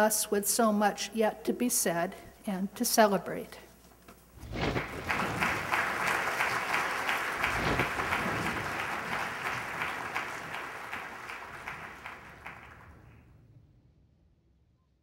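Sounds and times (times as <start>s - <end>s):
audience applauding: 4.6s - 13.2s.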